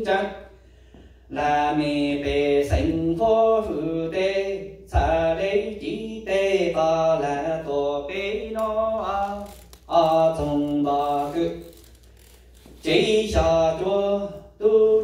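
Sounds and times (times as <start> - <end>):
man chanting into a microphone: 0.0 - 0.5, 1.3 - 11.7, 12.8 - 15.0.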